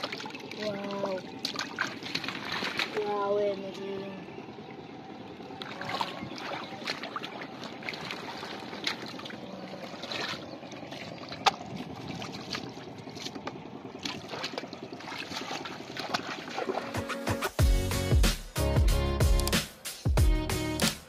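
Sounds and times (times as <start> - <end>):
hands splashing in muddy water: 0.0 - 3.2, 5.6 - 17.2
water trickling: 0.0 - 17.0.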